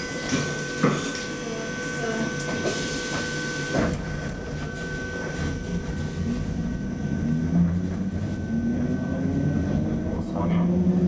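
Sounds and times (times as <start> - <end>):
high electrical whine: 0.0 - 11.0
tram running rumble: 0.0 - 11.0
traction motor hum rising: 3.4 - 11.0.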